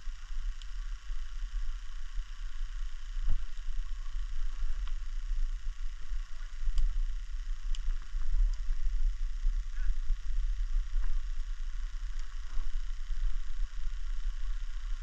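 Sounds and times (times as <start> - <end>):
low uneven microphone rumble: 0.0 - 15.0
steady hiss: 0.0 - 15.0
faint light clicks: 4.8 - 5.0, 6.6 - 6.9, 7.7 - 8.7.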